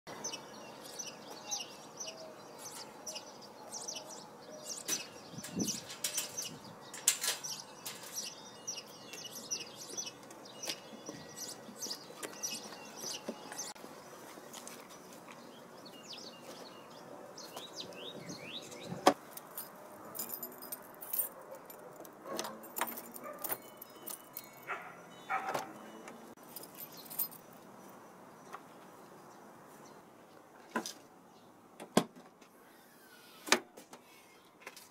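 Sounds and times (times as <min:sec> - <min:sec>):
small birds chirping: 0:00.1 - 0:19.2, 0:23.2 - 0:30.5
gear clinking and rattling: 0:19.3 - 0:24.8, 0:26.4 - 0:27.5.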